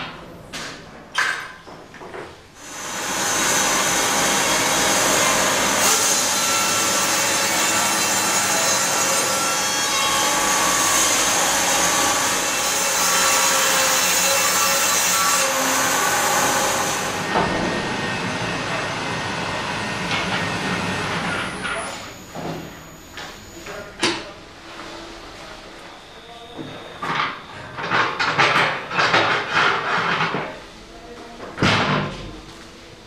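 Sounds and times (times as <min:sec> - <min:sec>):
band saw cutting through log: 0:02.6 - 0:22.3.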